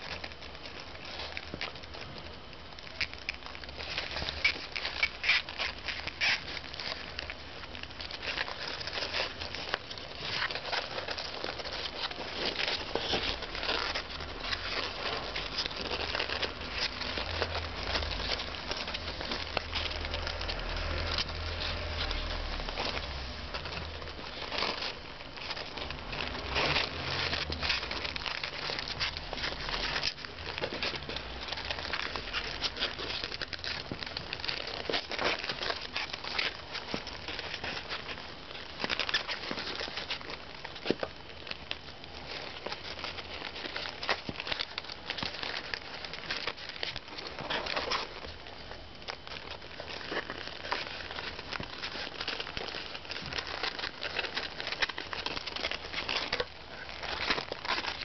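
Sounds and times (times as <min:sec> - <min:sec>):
rats scrabbling on cardboard: 0:00.0 - 0:58.0.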